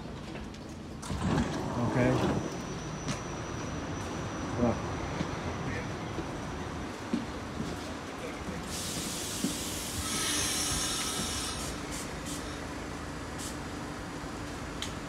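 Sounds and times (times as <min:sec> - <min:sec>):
compressed air hissing: 0:08.7 - 0:12.6.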